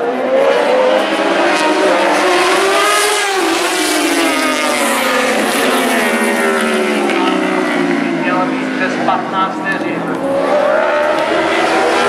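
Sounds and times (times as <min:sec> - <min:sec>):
racing motorcycles revving: 0:00.0 - 0:12.0.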